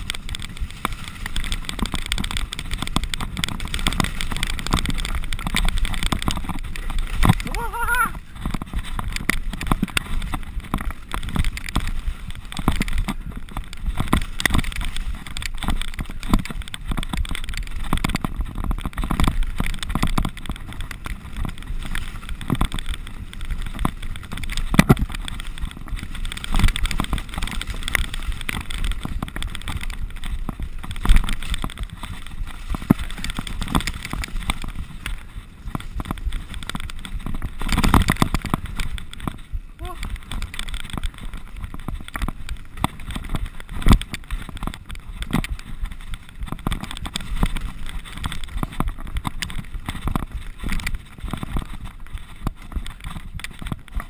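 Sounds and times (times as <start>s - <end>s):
bike rattling and knocking: 0.0s - 54.0s
bike tyres rolling on dirt: 0.0s - 54.0s.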